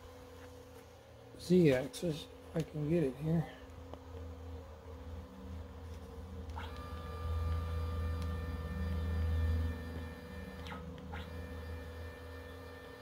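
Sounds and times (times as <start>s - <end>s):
steady electrical hum: 0.0s - 13.0s
stepper motor whine: 6.0s - 13.0s.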